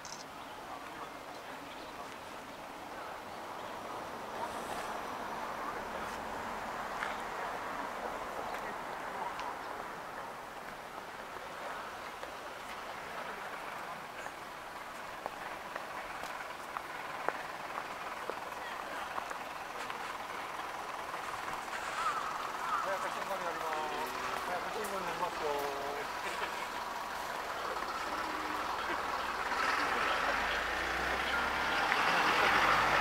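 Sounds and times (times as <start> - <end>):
murmur of distant voices: 0.0 - 33.0
passing traffic: 0.0 - 33.0.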